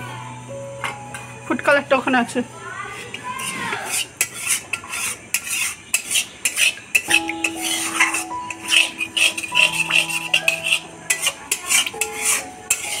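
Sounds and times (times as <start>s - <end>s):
metal utensils clinking on pots: 3.0s - 13.0s.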